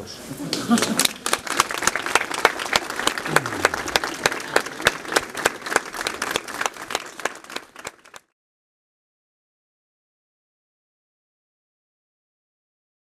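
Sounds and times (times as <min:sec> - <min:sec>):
crowd applauding: 0:00.5 - 0:08.3.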